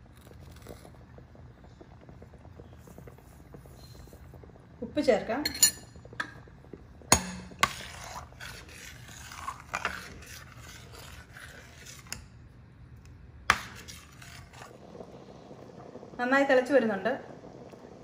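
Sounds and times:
ladle scraping in metal pot: 7.4 - 12.4, 13.5 - 14.8.

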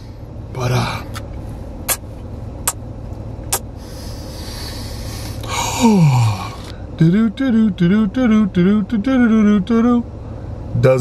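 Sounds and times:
car low hum: 0.0 - 11.0
breathy exhale: 3.8 - 6.9
man humming mmm: 5.4 - 6.7.

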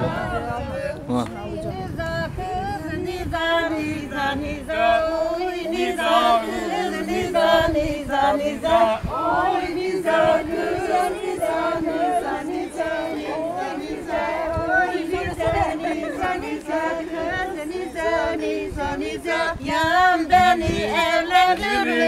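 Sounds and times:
group of voices singing folk song: 0.0 - 22.0.

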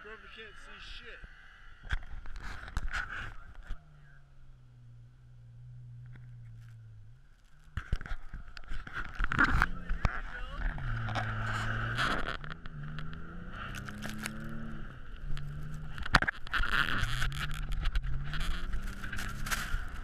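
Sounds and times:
truck engine revving: 9.2 - 20.0.

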